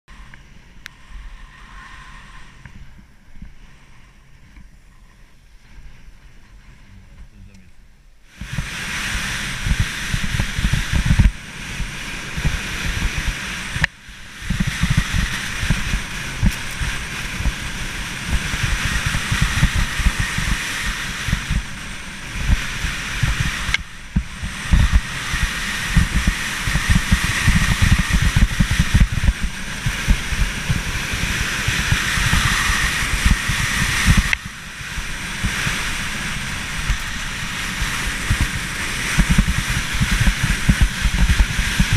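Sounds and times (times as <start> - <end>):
skis hissing over snow: 8.3 - 41.9
wind buffeting microphone: 8.4 - 41.9.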